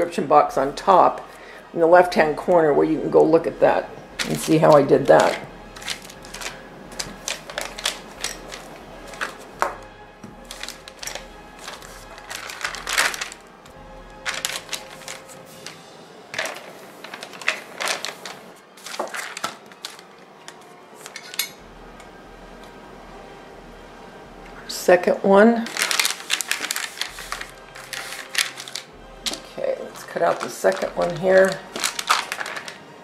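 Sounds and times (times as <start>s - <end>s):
paper rustling and crinkling: 4.1s - 21.5s, 25.6s - 33.0s.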